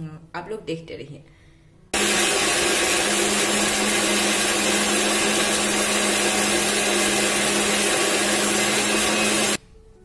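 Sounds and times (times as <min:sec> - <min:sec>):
mixer grinder grinding: 0:02.0 - 0:09.6.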